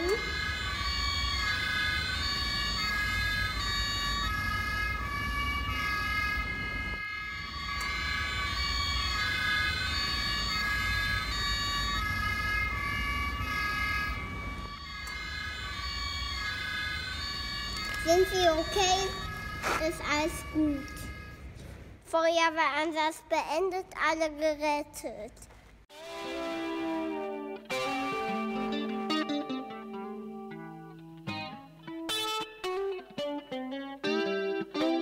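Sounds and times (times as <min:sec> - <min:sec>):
two-tone sirens: 0:00.0 - 0:21.4.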